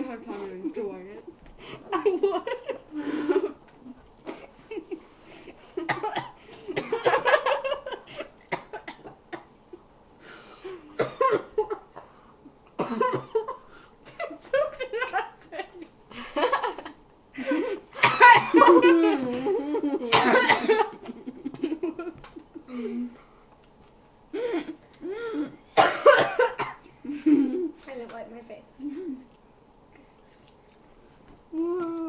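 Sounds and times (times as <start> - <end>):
girls laughing: 1.8 - 5.0, 14.2 - 22.8
girls coughing: 5.8 - 9.5, 11.0 - 12.2, 12.8 - 15.4, 16.4 - 21.0, 24.4 - 26.9.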